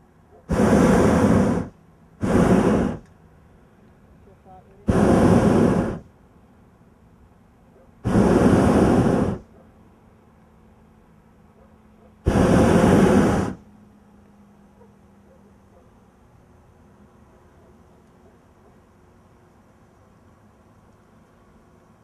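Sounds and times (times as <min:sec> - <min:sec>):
propane burner blasts: 0:00.0 - 0:06.2, 0:08.0 - 0:09.5, 0:12.2 - 0:13.7.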